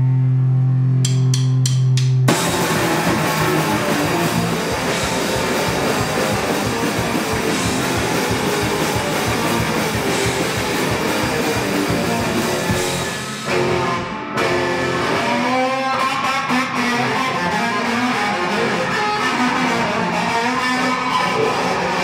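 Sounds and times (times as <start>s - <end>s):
drum kit: 1.0s - 15.6s
electric guitar: 2.2s - 22.0s.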